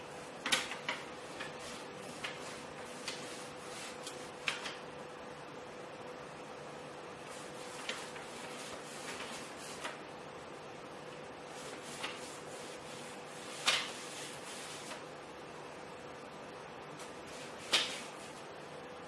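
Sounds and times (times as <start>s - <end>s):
faint steady hum: 0.0s - 19.0s
paper rustling: 0.4s - 4.8s, 7.2s - 10.0s, 11.5s - 15.0s, 17.0s - 18.4s.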